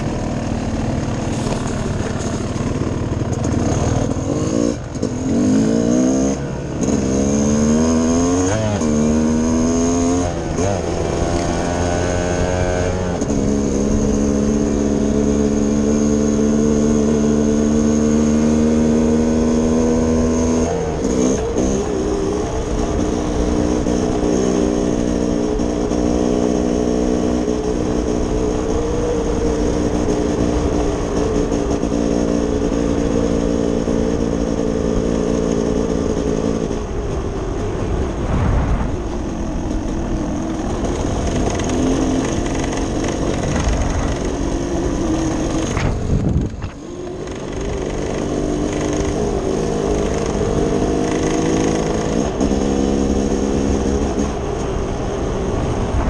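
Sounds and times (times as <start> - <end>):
vehicle engine cruising: 0.0 - 56.0
rushing noise: 37.1 - 48.1.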